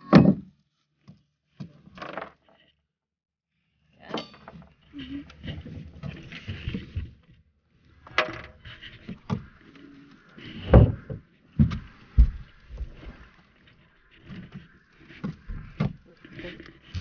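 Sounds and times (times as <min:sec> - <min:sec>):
knocks and thumps on boat: 0:10.5 - 0:13.2.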